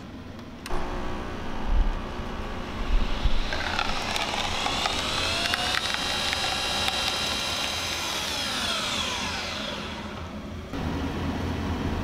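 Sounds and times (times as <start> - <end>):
coffee machine whine: 0.0 - 12.0.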